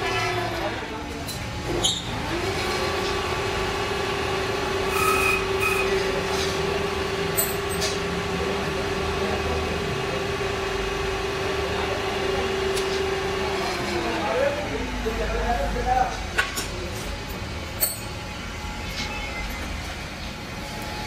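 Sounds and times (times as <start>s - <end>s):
lathe motor whine: 2.1s - 7.7s
high-pitched squeal: 4.9s - 6.2s.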